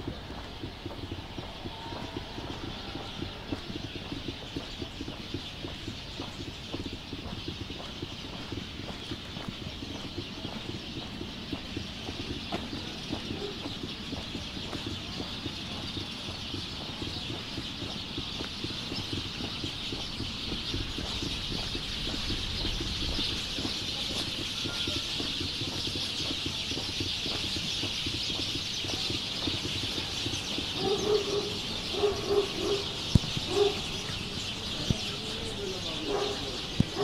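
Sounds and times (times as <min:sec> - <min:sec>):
bird calling: 0:00.0 - 0:37.0.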